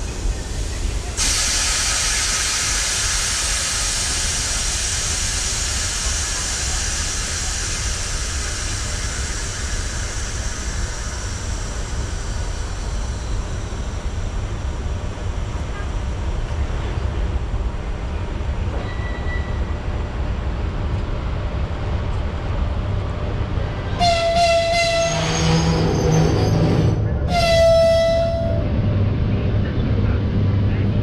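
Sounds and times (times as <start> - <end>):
locomotive rumbling: 0.0 - 31.0
locomotive horn blasts: 24.0 - 25.4, 27.3 - 28.6.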